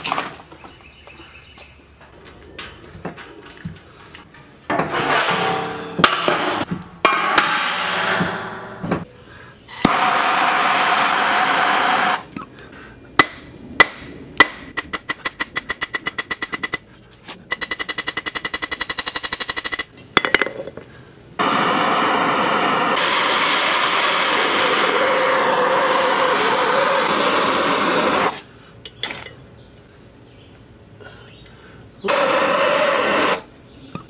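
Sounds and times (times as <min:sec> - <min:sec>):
hammer striking hot rod on anvil: 0:04.7 - 0:09.1
gas torch hissing: 0:09.7 - 0:12.3, 0:21.4 - 0:28.5, 0:32.1 - 0:33.5.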